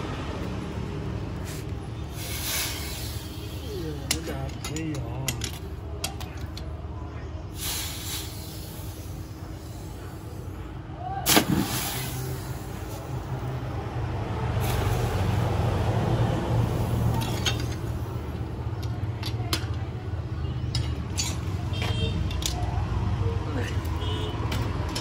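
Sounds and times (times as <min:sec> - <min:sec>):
hot blade hissing in quench bath: 0:07.6 - 0:09.1
blade striking liquid: 0:11.3 - 0:12.0.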